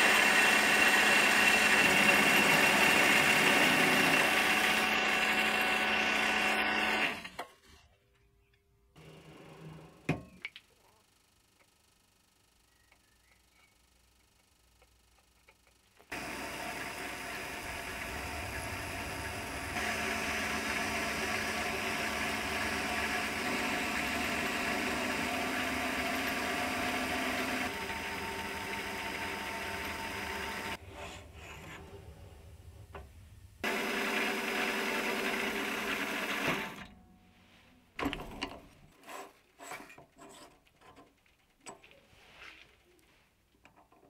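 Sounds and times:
mini lathe running: 0.0s - 7.3s, 15.1s - 30.8s, 33.6s - 36.9s
reamer cutting metal part: 16.1s - 30.8s.

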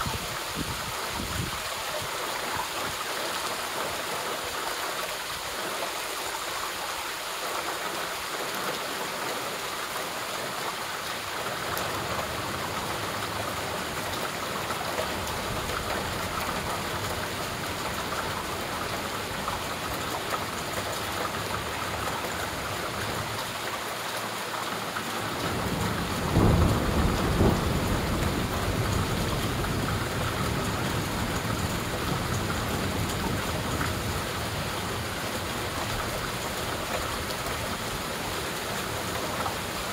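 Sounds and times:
rain hissing: 0.0s - 39.9s
thunder rumbling: 25.3s - 34.1s.

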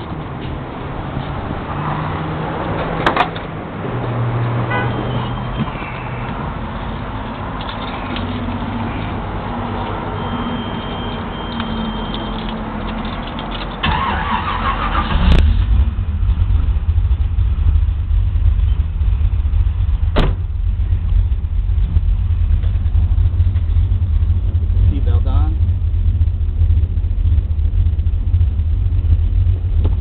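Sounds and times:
car engine rumbling: 0.0s - 30.0s
engine cranking and starting: 11.0s - 15.9s.

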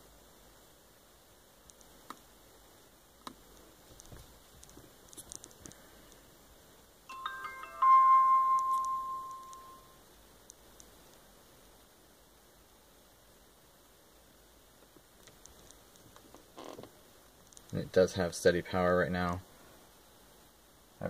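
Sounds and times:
electronic power-on chime: 7.1s - 10.0s.

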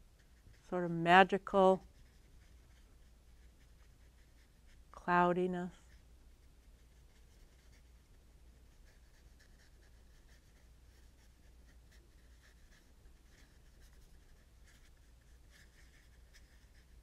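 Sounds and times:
paintbrush dabbing on paper: 0.0s - 17.0s.

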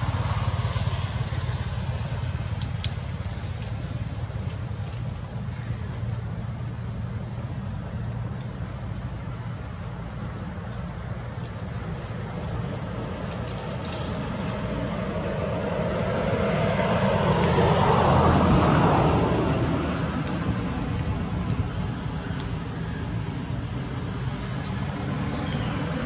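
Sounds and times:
vehicle passing: 0.0s - 4.9s, 12.2s - 26.0s
road traffic rumble: 0.0s - 26.0s.

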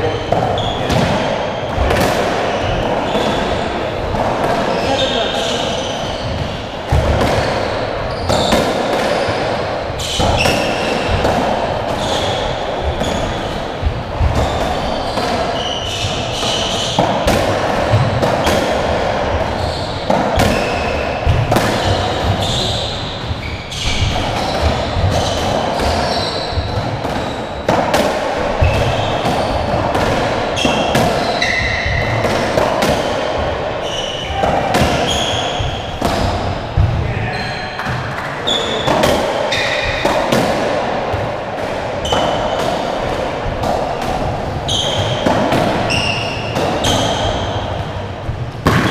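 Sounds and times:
racket striking ball: 0.2s - 5.5s, 6.3s - 37.0s, 37.7s - 48.9s
shoes squeaking on wooden floor: 19.3s - 27.7s, 30.5s - 32.2s, 33.0s - 37.8s, 44.6s - 45.2s.

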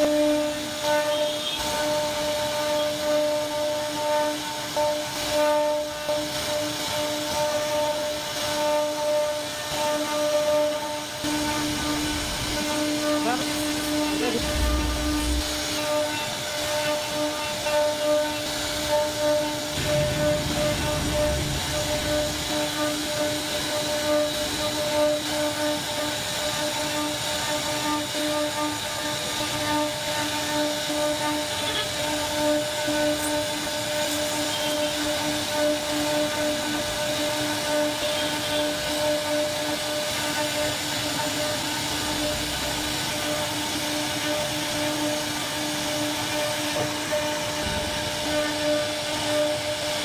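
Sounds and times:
router spindle whining: 0.0s - 50.0s
low hum: 11.3s - 16.1s, 18.5s - 24.7s
deep rumble: 11.6s - 12.8s, 13.8s - 15.8s, 18.6s - 24.7s.

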